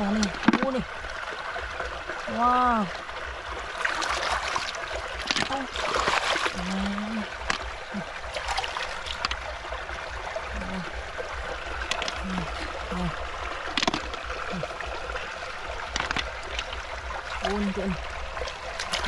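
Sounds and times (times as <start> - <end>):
muddy water trickling and splashing: 0.0 - 19.0
sharp clicks and knocks: 13.7 - 14.2, 15.9 - 16.7.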